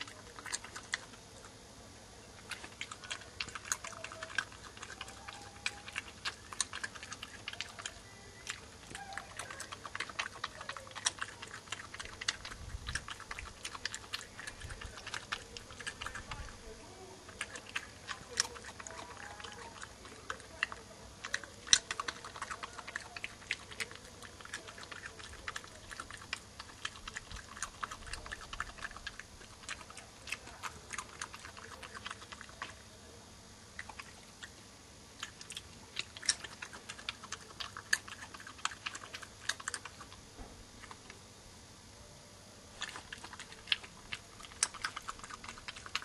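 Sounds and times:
badger crunching peanuts: 0:00.0 - 0:01.2, 0:02.4 - 0:16.6, 0:17.2 - 0:32.8, 0:35.2 - 0:41.2, 0:42.8 - 0:46.0.

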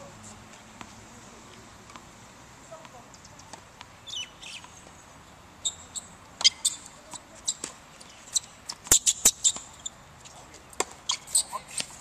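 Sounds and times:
tennis shoes squeaking: 0:02.7 - 0:05.0, 0:05.6 - 0:12.0
racket striking ball: 0:10.8 - 0:12.0.

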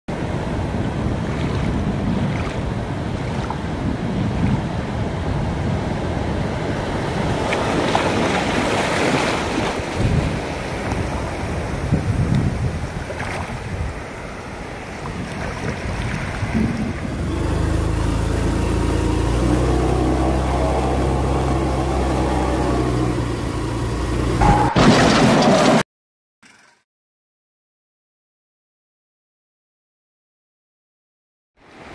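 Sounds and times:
wind buffeting microphone: 0:00.1 - 0:18.5
ocean surf washing in: 0:00.1 - 0:23.8.

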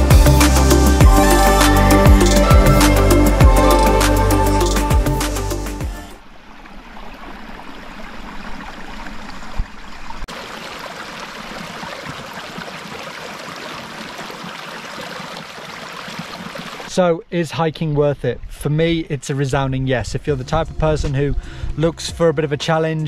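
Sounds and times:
background music: 0:00.0 - 0:06.2
stream water rushing: 0:00.0 - 0:16.9.

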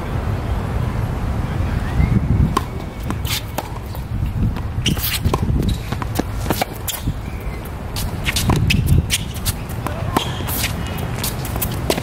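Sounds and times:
racket hitting tennis ball: 0:02.5 - 0:12.0
shoes scuffing on court: 0:02.5 - 0:12.0
tennis ball bouncing: 0:02.5 - 0:12.0.

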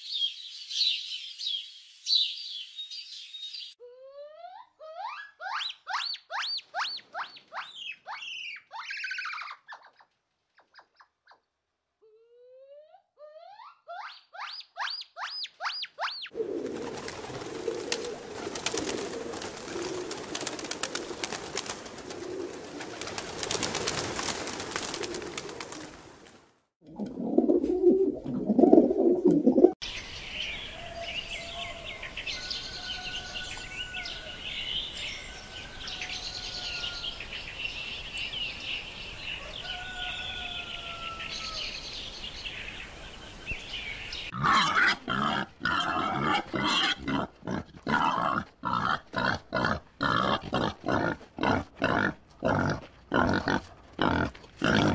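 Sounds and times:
small birds chirping: 0:00.0 - 0:11.5
gibbon whooping: 0:03.8 - 0:09.6
pigeon cooing: 0:16.3 - 0:23.2, 0:26.9 - 0:29.8.

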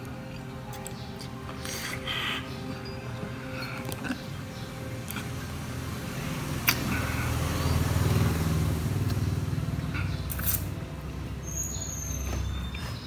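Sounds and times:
motorbike rumbling past: 0:05.2 - 0:13.0.

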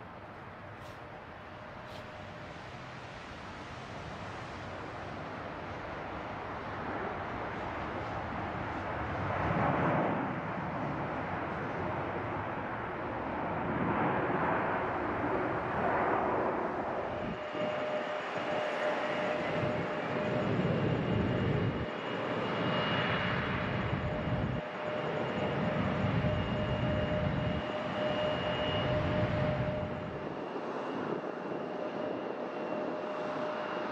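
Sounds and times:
high engine whine: 0:13.5 - 0:33.9
jet engine rushing: 0:13.7 - 0:33.9.

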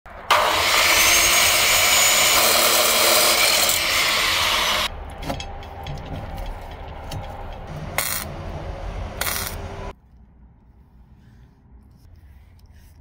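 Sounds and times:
cut-off saw grinding steel: 0:00.2 - 0:05.8.

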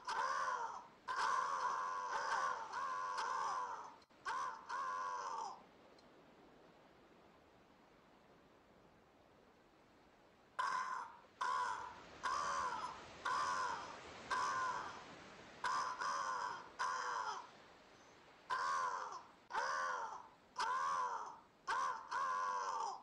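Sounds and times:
crows cawing: 0:00.0 - 0:05.6, 0:10.6 - 0:23.0.

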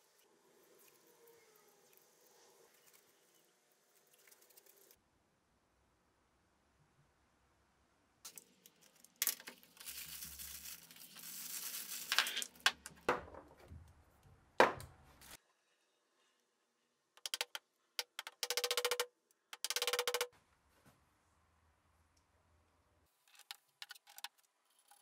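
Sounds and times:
wrapping crinkling and tearing: 0:08.3 - 0:12.6
plastic knobs clicking: 0:17.2 - 0:19.0.

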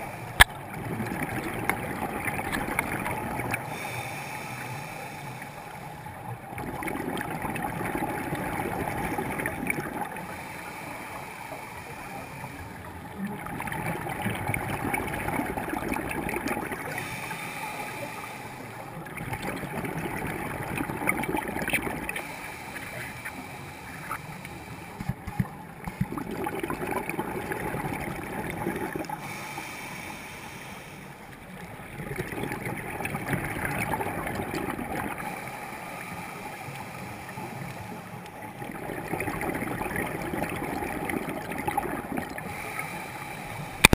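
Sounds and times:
gurgling exhaled bubbles: 0:00.0 - 0:04.0, 0:06.2 - 0:10.4, 0:13.0 - 0:17.6, 0:18.8 - 0:24.2, 0:25.0 - 0:29.5, 0:31.5 - 0:35.5, 0:38.4 - 0:42.8
diver breathing through regulator: 0:03.6 - 0:06.1, 0:10.1 - 0:13.0, 0:16.9 - 0:19.0, 0:22.1 - 0:26.4, 0:28.9 - 0:31.3, 0:35.2 - 0:38.3, 0:42.3 - 0:43.9.

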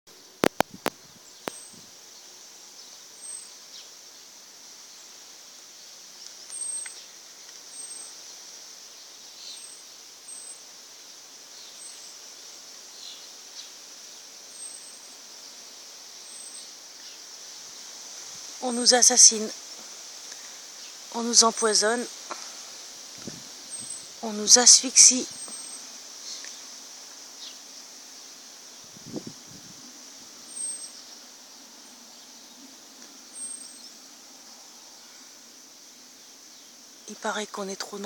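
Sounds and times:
bird chirping: 0:00.2 - 0:04.3, 0:05.8 - 0:10.7, 0:11.5 - 0:15.6, 0:16.2 - 0:17.3, 0:23.7 - 0:26.7, 0:30.4 - 0:35.2
high-pitched insect chorus: 0:00.2 - 0:38.0
sharp clicks: 0:00.4 - 0:01.6.

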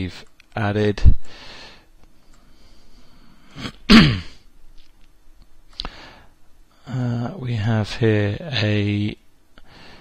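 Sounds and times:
man sneezing: 0:03.6 - 0:04.4.

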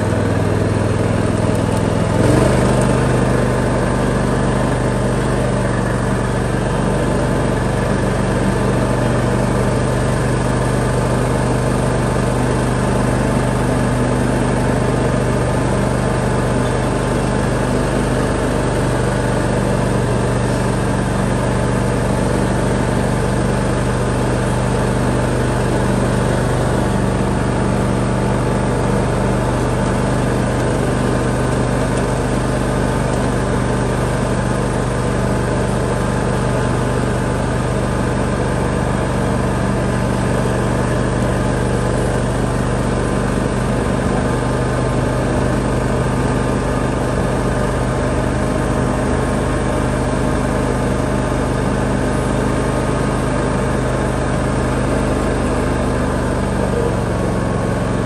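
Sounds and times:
lawn tractor engine running: 0:00.0 - 0:58.0.

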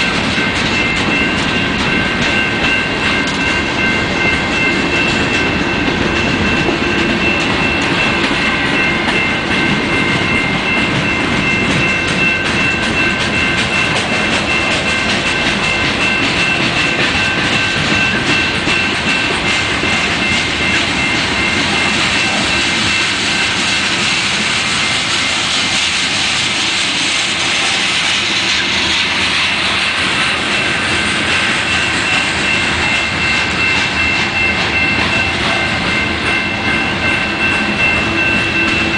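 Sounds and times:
crossing bell ringing: 0:00.0 - 0:38.9
train wheels clattering over rails: 0:00.0 - 0:38.9.

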